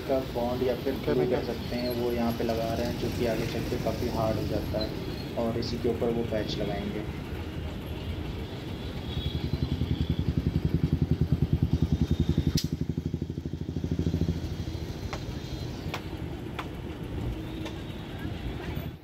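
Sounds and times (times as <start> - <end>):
small engine running: 0.0 - 19.0
sharp clicks: 12.5 - 12.8.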